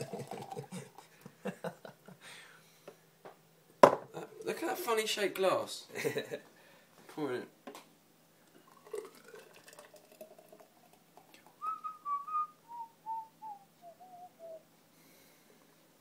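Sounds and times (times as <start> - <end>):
person whistling a tune: 11.6 - 14.6.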